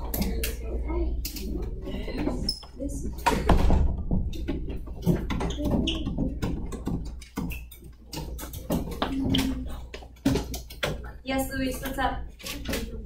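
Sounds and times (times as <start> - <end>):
children's voices: 8.9 - 10.0.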